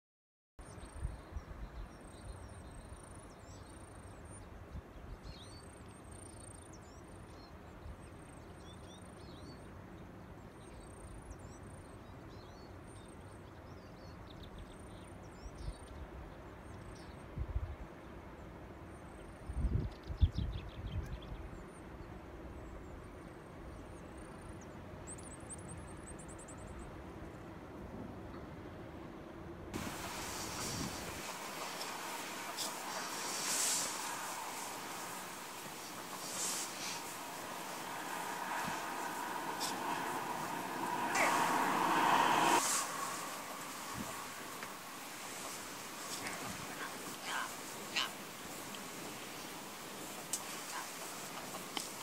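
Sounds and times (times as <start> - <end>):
wind buffeting microphone: 29.8 - 52.0.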